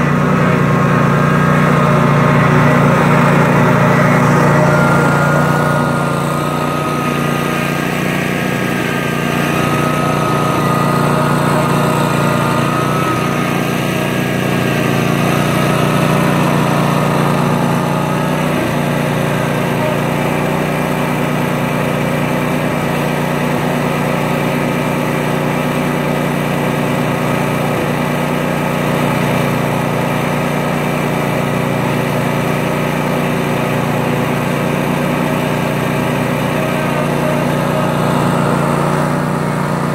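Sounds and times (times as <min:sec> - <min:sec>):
riding mower engine running: 0:00.0 - 0:39.9.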